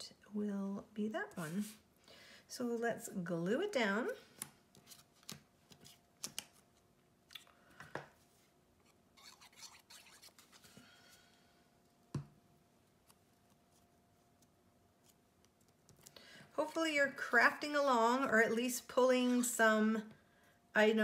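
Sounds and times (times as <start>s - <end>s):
paper and card tapped and shuffled: 4.3s - 6.9s
glue stick rubbing paper: 9.2s - 10.6s.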